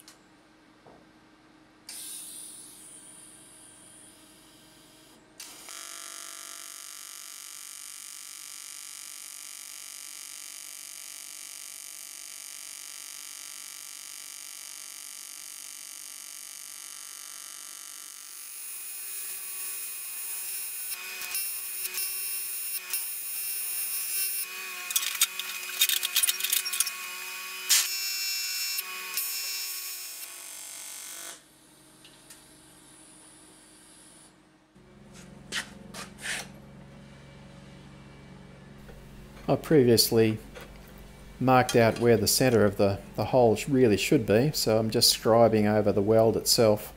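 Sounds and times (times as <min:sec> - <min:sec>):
welding arc buzzing: 0:01.9 - 0:36.6, 0:38.7 - 0:46.8
welding crackles and pops: 0:06.5 - 0:18.2, 0:20.7 - 0:27.0.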